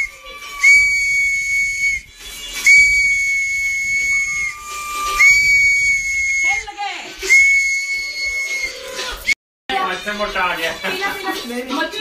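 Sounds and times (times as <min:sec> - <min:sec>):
shrill toy whistle blasts: 0:00.0 - 0:09.4.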